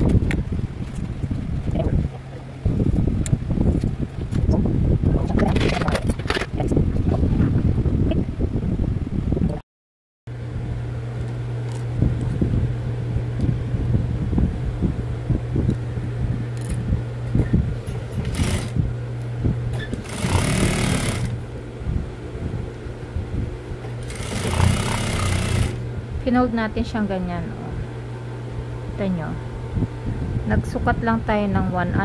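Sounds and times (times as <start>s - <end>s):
sewing machine stitching: 18.0s - 18.8s, 19.8s - 21.4s, 24.0s - 25.8s.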